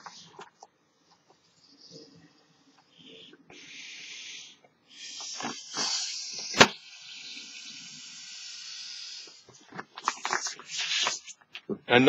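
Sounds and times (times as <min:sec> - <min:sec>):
breath blowing into balloon: 0:03.1 - 0:09.5.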